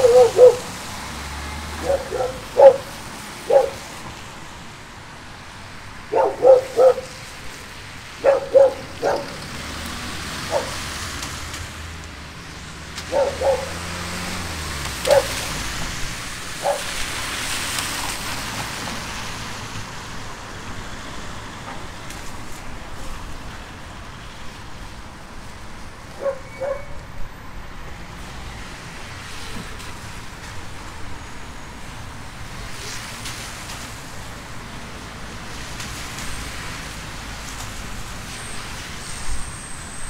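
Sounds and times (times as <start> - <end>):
dog barking: 0.0 - 0.7, 1.8 - 3.8, 6.1 - 7.3, 8.2 - 9.4, 10.5 - 10.8, 13.1 - 13.8, 15.0 - 15.5, 16.6 - 17.0, 26.2 - 27.0.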